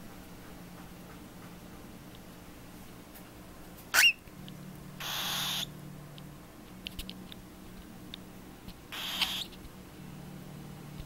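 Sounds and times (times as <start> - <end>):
bird chick peeping: 5.0 - 5.7, 8.9 - 9.6
bird chick raspy hissing calls: 5.0 - 5.7, 8.9 - 9.6.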